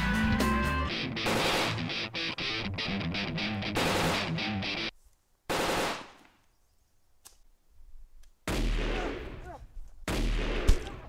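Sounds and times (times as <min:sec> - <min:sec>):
background music: 0:00.0 - 0:04.9
gunshot bursts with echo: 0:01.2 - 0:01.9, 0:03.8 - 0:04.4, 0:05.5 - 0:06.2, 0:08.5 - 0:09.4, 0:10.1 - 0:11.0.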